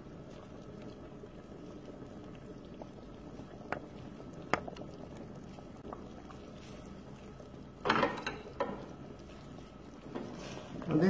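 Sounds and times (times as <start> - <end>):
sauce simmering in a pot: 0.0 - 11.0.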